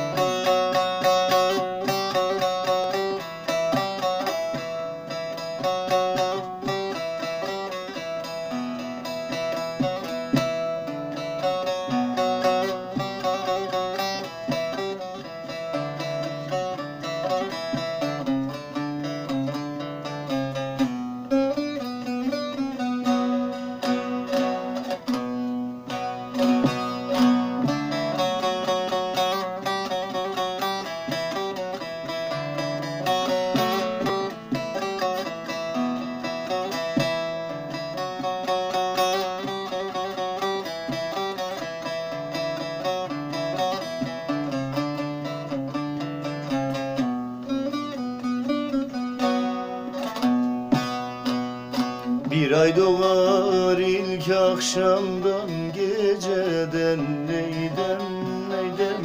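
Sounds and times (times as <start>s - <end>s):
long-necked lute folk melody: 0.0s - 59.0s.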